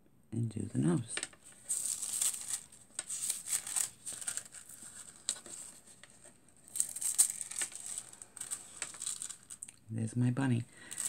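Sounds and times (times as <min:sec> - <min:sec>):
foil and paper crinkling: 0:01.4 - 0:09.6, 0:10.8 - 0:11.0.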